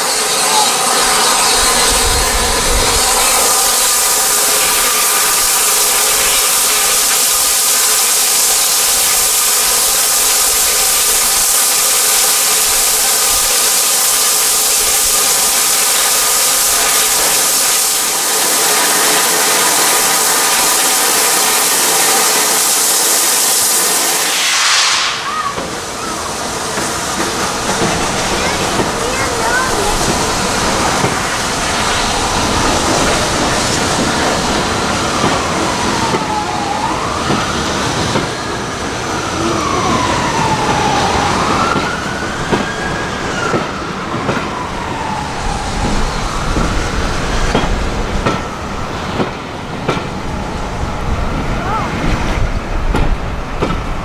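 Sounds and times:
steam locomotive blowing off steam: 0.0 - 54.0.

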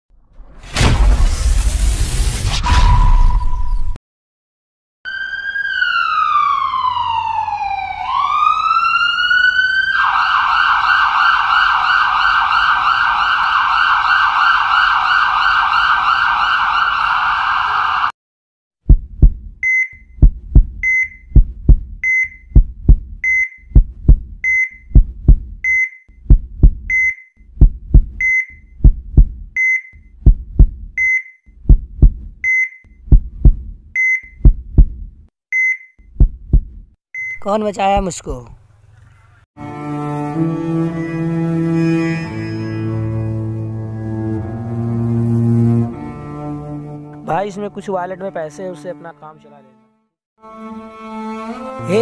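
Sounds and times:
ambulance siren wailing: 5.1 - 18.1
heartbeat thumps: 18.8 - 35.2, 36.1 - 37.0
patient monitor beeps: 35.6 - 35.9.

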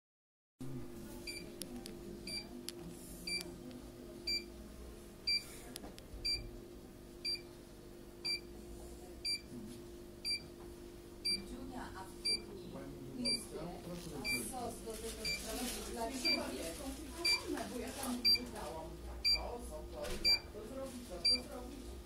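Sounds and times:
steady low hum: 0.6 - 16.5.

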